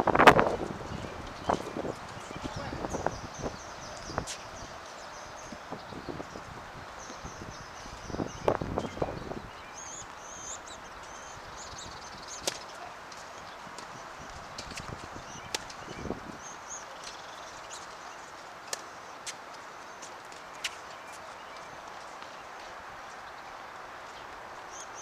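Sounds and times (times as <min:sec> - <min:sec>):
birds chirping faintly: 0:00.0 - 0:25.0.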